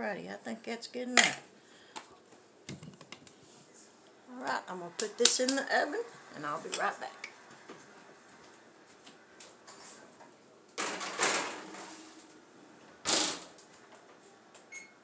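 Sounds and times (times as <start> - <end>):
oven door banging shut: 10.8 - 11.9, 13.0 - 13.6
oven door opening with clatter: 10.8 - 12.1.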